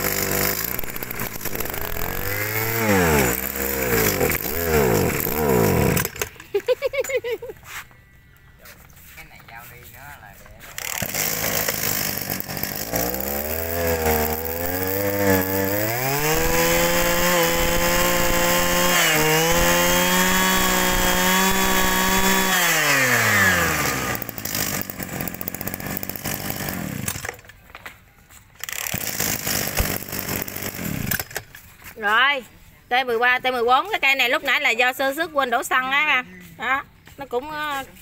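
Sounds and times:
brush cutter engine revving: 0:00.0 - 0:06.7, 0:10.6 - 0:27.4, 0:28.6 - 0:31.4.

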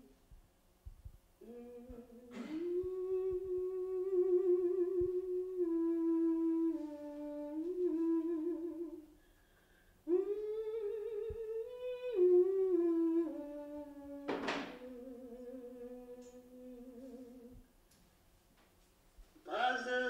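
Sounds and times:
woman humming a melody: 0:01.4 - 0:09.2, 0:10.0 - 0:17.7.

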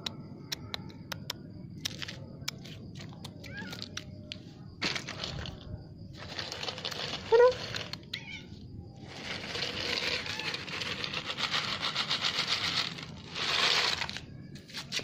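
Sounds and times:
crinkling rustle: 0:04.8 - 0:08.0, 0:09.0 - 0:15.0.

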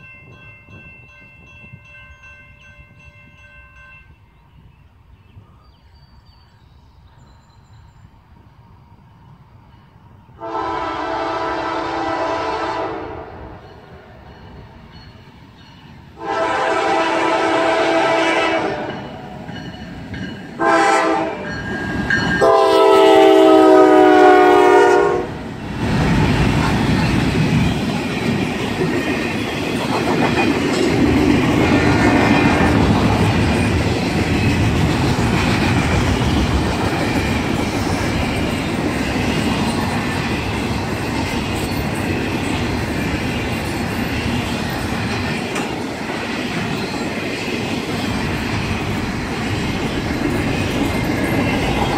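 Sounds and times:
freight train wheel and rail noise: 0:00.0 - 0:51.9
locomotive air horn: 0:10.4 - 0:13.5, 0:16.2 - 0:19.0, 0:20.6 - 0:21.5, 0:22.4 - 0:25.4
clickety-clack over rail joints: 0:25.7 - 0:51.9.

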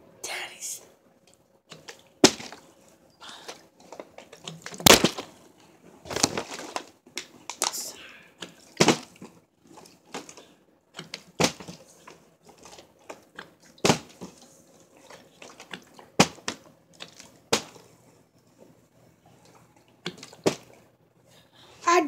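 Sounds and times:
water sloshing: 0:03.4 - 0:05.4, 0:08.4 - 0:17.8.

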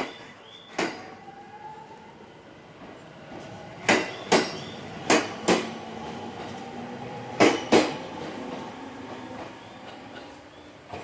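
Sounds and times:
low running hum of train: 0:00.0 - 0:11.0
train wheels clacking over rail joint: 0:03.8 - 0:05.8, 0:07.4 - 0:08.7.

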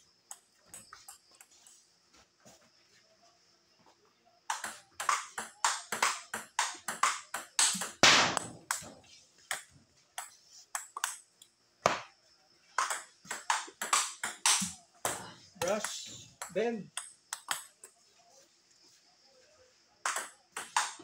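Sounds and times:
table tennis ball hits: 0:04.5 - 0:11.2, 0:11.8 - 0:12.1, 0:12.8 - 0:17.7, 0:20.0 - 0:21.0.

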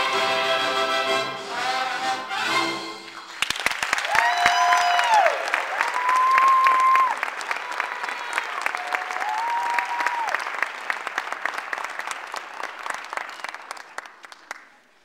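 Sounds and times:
audience applauding: 0:03.0 - 0:15.0
long held whoops: 0:04.1 - 0:07.2, 0:08.3 - 0:10.4.

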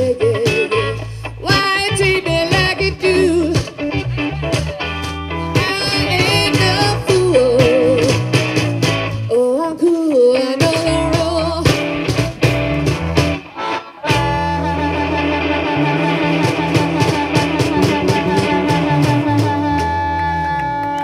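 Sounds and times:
bass guitar: 0:00.0 - 0:21.0
electric guitar: 0:00.0 - 0:21.0
harmonica warbling: 0:12.8 - 0:21.0.

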